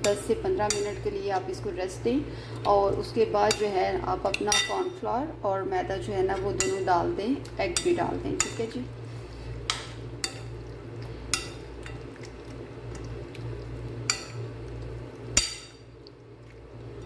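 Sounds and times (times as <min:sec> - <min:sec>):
spoon stirring wet marinade: 0:07.8 - 0:17.0.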